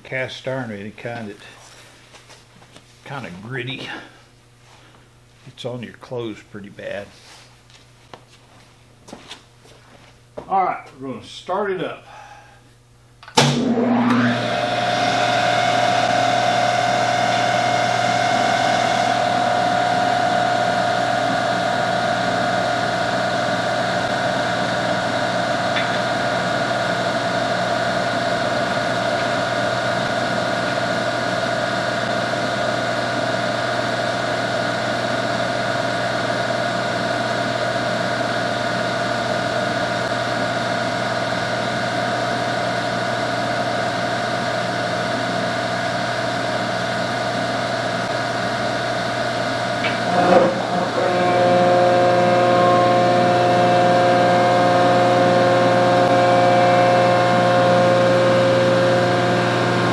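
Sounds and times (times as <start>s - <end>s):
machine hum: 11.0s - 59.9s
hydraulic pump whine: 13.2s - 59.9s.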